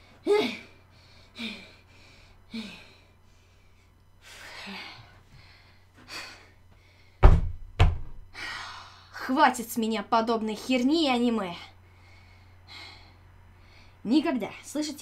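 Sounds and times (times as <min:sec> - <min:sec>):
woman breathing hard: 0:00.0 - 0:07.2, 0:08.3 - 0:09.2, 0:11.8 - 0:14.0
loud thump: 0:07.2 - 0:08.3.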